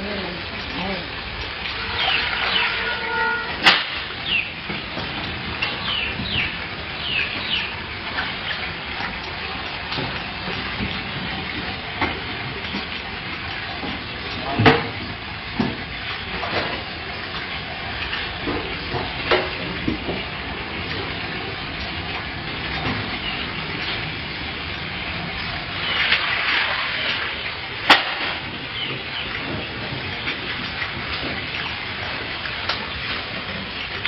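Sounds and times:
eels slithering in water: 16.0s - 34.0s.

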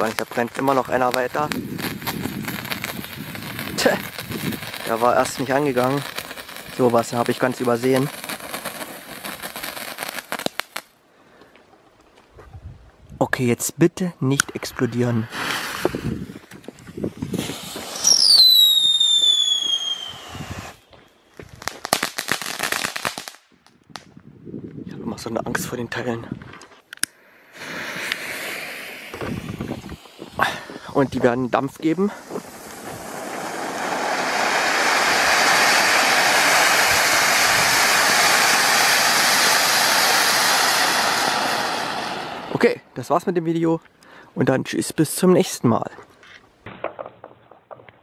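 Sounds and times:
firework crackling pops: 0.0s - 10.9s, 14.3s - 24.1s, 26.9s - 42.7s, 46.6s - 48.0s
firework fountain hissing sparks: 0.0s - 10.9s, 14.6s - 20.8s, 27.3s - 42.7s
falling firework whistle: 17.2s - 21.2s, 27.5s - 31.2s, 32.2s - 42.6s.

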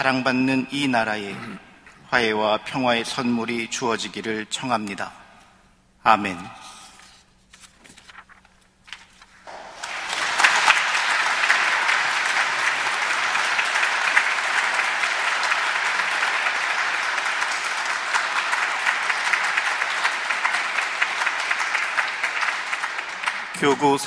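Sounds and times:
congregation applauding: 9.4s - 24.0s.

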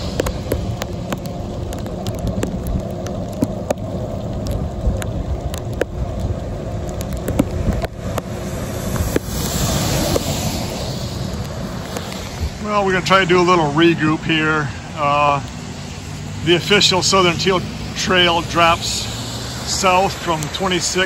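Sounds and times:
sharp ticks and clicks: 0.0s - 9.3s
wind on microphone: 0.0s - 12.7s
bicycle tyres rumbling on wet pavement: 0.0s - 21.0s
truck tyres hissing on wet road: 0.0s - 21.0s.

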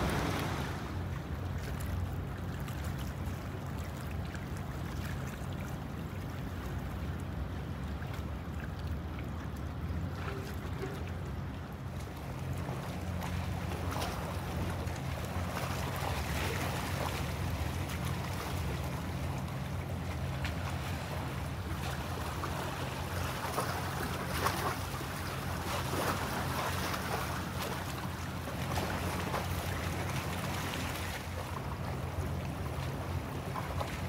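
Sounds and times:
water and light wind: 0.0s - 34.0s.

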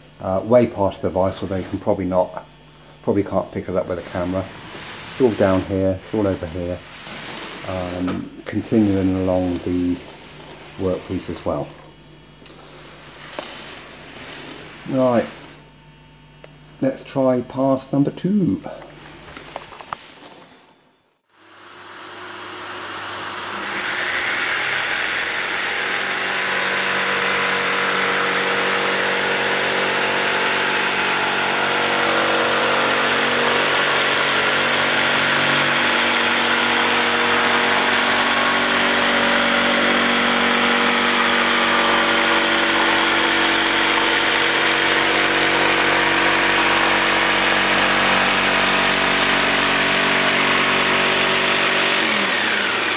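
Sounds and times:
dust extractor running: 0.0s - 15.7s, 21.3s - 52.9s
jigsaw cutting board: 4.0s - 11.6s, 21.4s - 52.9s.

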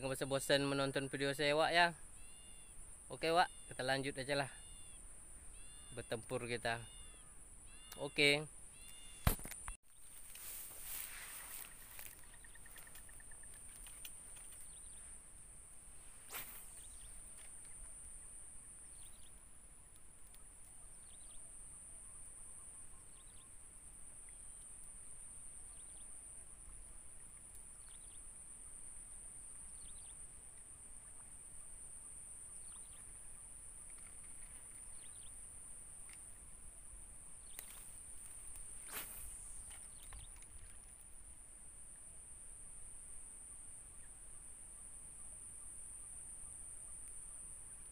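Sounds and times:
faint chirps: 0.0s - 41.0s
high-pitched insect drone: 0.7s - 9.3s.

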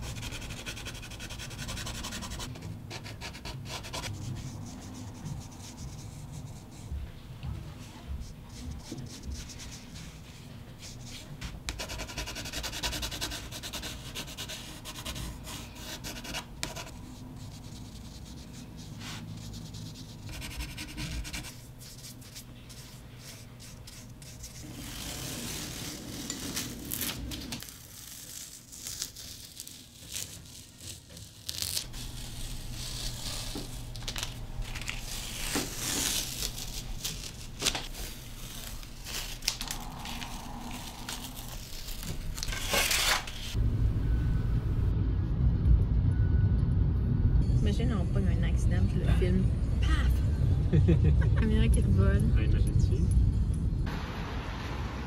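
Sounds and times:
paintbrush scratching on paper: 0.0s - 7.0s, 7.9s - 26.2s
paper crinkling: 21.6s - 43.6s.

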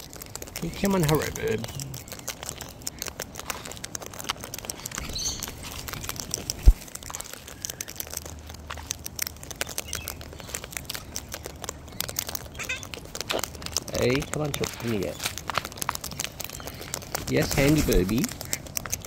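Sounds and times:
beaks crunching seed: 0.0s - 19.0s
faint bird chirps: 4.8s - 5.7s, 9.7s - 13.0s.

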